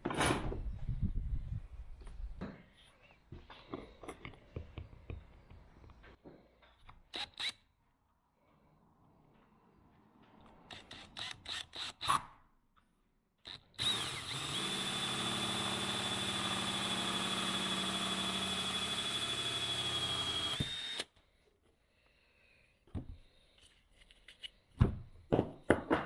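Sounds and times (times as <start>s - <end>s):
cordless drill whining: 13.6s - 21.2s.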